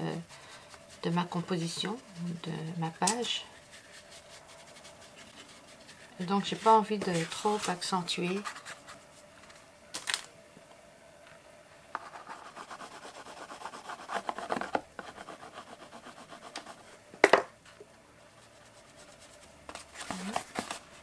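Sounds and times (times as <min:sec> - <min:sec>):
pastel scratching on paper: 0:00.1 - 0:02.7, 0:03.6 - 0:09.0, 0:12.0 - 0:16.9, 0:18.4 - 0:20.7.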